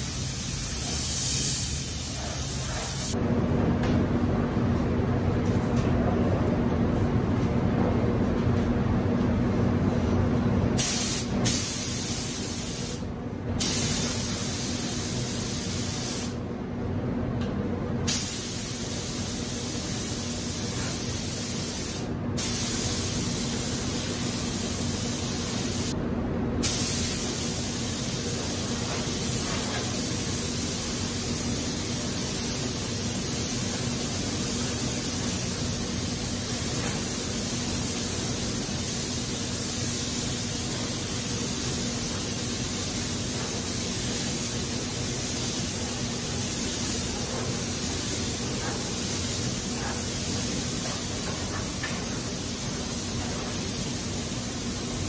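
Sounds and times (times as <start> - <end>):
paint spray gun hissing: 0.0 - 3.2, 26.6 - 55.0
steady low hum: 0.0 - 55.0.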